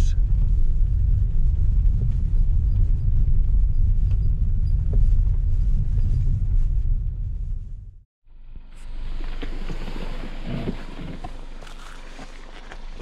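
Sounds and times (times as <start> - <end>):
car rumbling on gravel road: 8.5 - 13.0.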